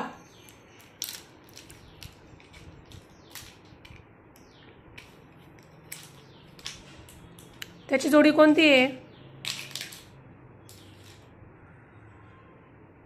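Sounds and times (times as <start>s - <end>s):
plastic toys clicking on tiles: 0.4s - 7.8s, 9.4s - 10.1s.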